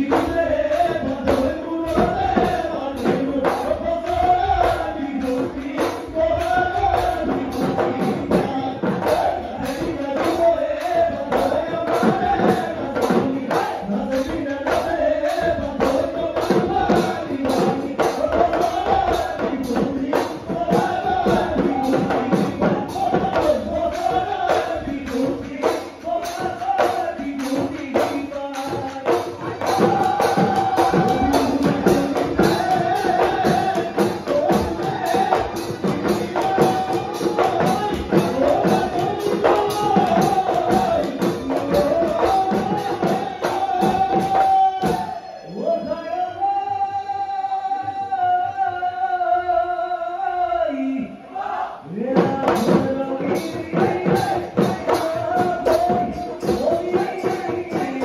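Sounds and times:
metallic jingling percussion: 0:00.0 - 0:45.2
drums in fast rhythm: 0:00.0 - 0:49.8, 0:50.4 - 0:58.0.

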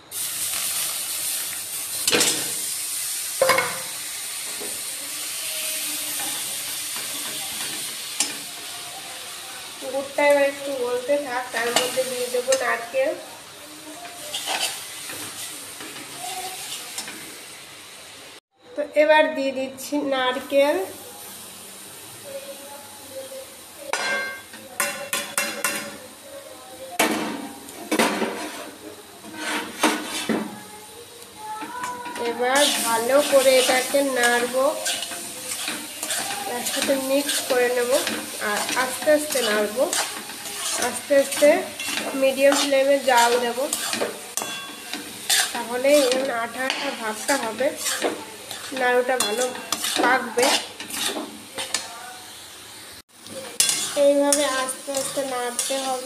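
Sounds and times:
jaggery sizzling in hot pan: 0:00.0 - 0:56.0
spatula scraping pan: 0:14.1 - 0:17.2, 0:27.9 - 0:30.6, 0:31.6 - 0:51.9, 0:53.4 - 0:56.0.

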